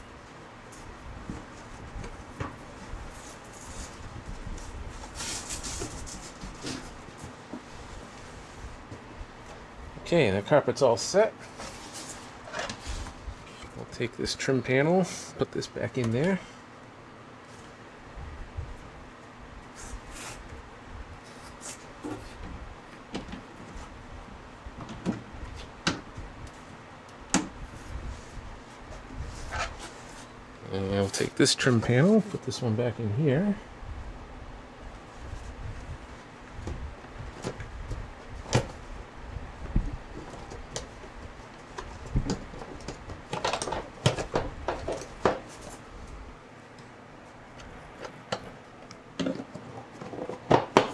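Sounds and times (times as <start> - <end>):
plastic panel rustling: 41.6 - 45.8.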